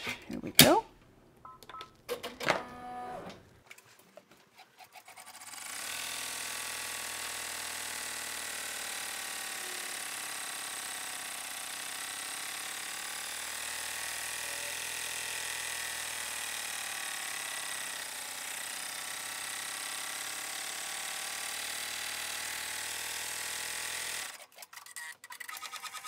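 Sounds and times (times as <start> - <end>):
embroidery machine running: 5.4 - 22.0.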